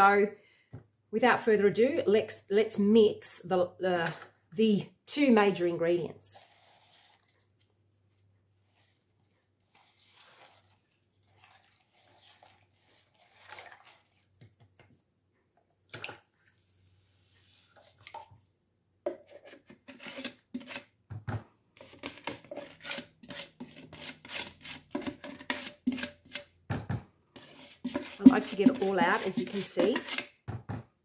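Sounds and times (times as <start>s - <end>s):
liquid trickling into bucket: 9.7s - 14.3s
scraping against plastic tub: 27.3s - 30.4s.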